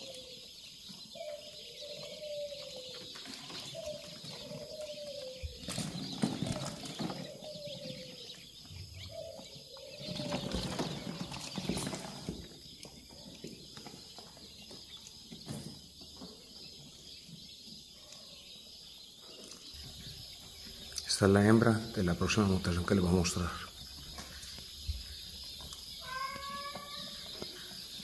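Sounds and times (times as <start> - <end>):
rustling and light knocks: 9.4 - 17.7.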